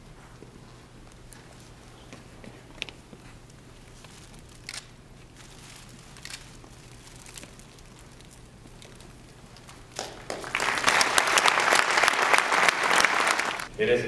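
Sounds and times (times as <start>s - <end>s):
audience applauding: 9.9s - 13.7s.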